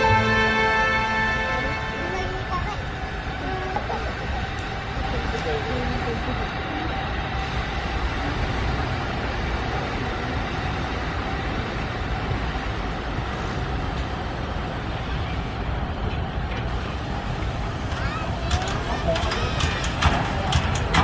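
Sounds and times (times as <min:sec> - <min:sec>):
steam locomotive rumbling and hissing: 0:00.0 - 0:21.0.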